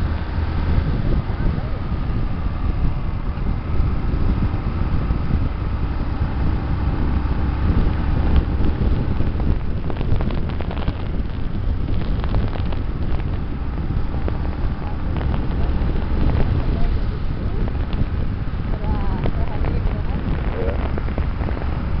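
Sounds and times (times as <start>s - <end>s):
motorcycle engine rumbling: 0.0s - 22.0s
wind rushing over microphone: 0.0s - 22.0s
faint clicks and crackles: 7.8s - 16.9s, 17.5s - 22.0s.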